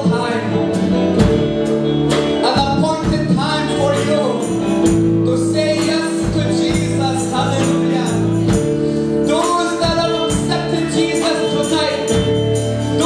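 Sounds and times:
worship band playing slow song: 0.0 - 13.0
tambourine jingling: 2.6 - 13.0.

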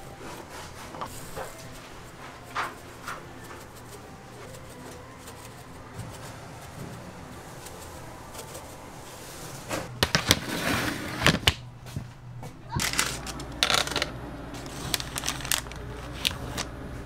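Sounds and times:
low kitchen hum: 0.0 - 17.0
metal baking trays clattering: 12.7 - 16.8.

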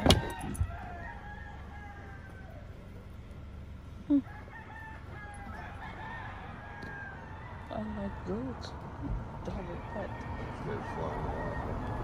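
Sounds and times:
rooster crowing: 0.0 - 2.9, 4.1 - 8.5, 9.7 - 12.0.

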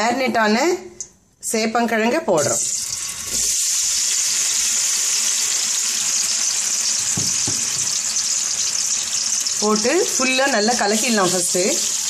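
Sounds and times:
food sizzling in hot oil: 2.4 - 12.0.

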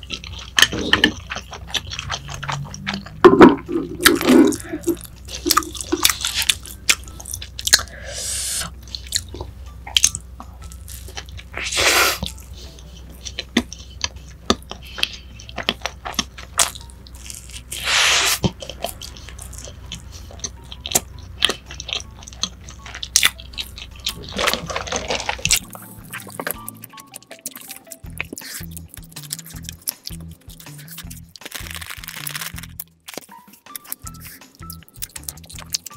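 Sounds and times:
chewing and biting food: 0.0 - 8.0, 8.6 - 35.9
wet mouth clicks: 26.3 - 31.3, 32.3 - 35.9.

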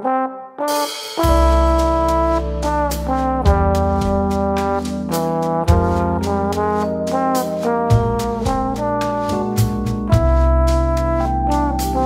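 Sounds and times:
trombone melody: 0.0 - 12.0
keyboard chords: 0.1 - 12.0
ticking beat: 1.1 - 12.0
deep bass notes: 1.2 - 12.0.

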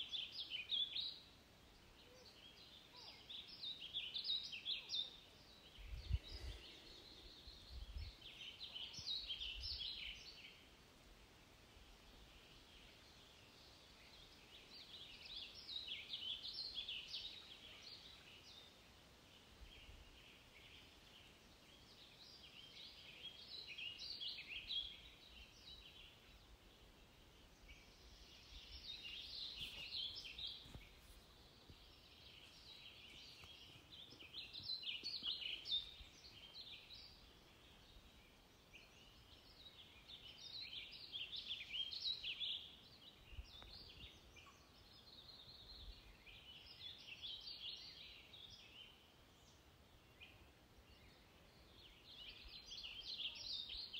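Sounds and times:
background hiss: 0.0 - 53.9
faint bird chirping: 0.0 - 53.9.

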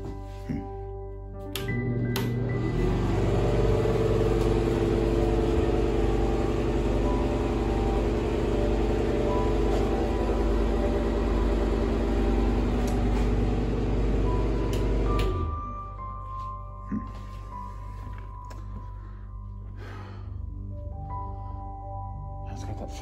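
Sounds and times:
exhaust fan humming: 1.6 - 15.8.

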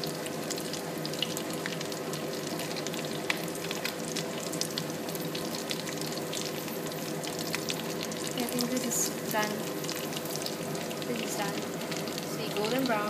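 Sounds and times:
food deep-frying in hot oil: 0.0 - 13.0.

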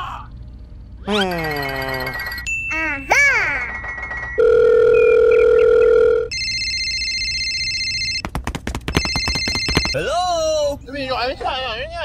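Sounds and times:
telephone ringing tone: 1.4 - 2.6, 3.6 - 8.3, 9.0 - 10.0
telephone dial tone: 4.0 - 8.2, 9.0 - 10.0
rapid clicks: 8.1 - 10.0.

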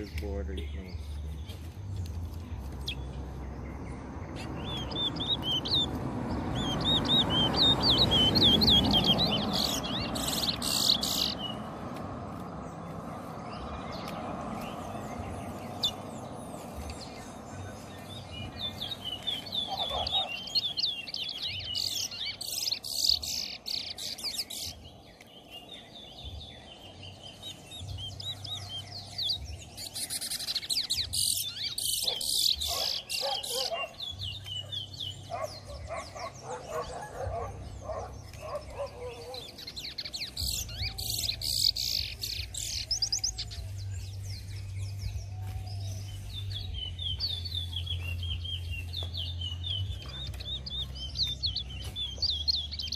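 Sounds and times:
finches singing warbling song: 0.0 - 52.9.

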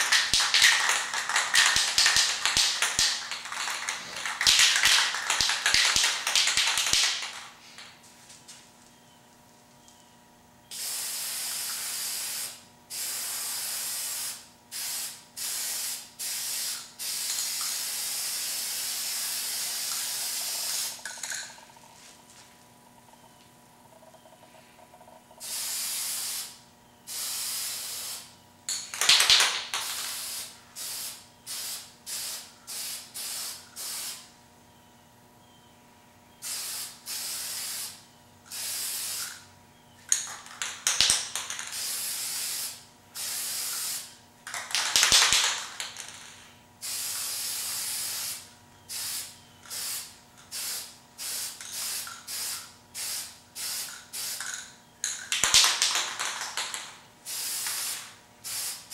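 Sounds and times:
aerosol spray can hissing: 0.0 - 7.4, 10.7 - 21.0, 29.8 - 34.2, 36.4 - 39.3, 41.7 - 44.1, 46.8 - 54.6, 57.3 - 58.9.

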